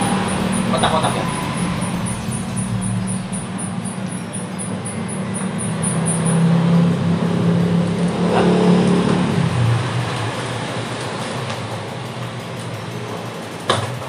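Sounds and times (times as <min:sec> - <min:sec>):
vehicle engine passing by: 0:00.0 - 0:13.1.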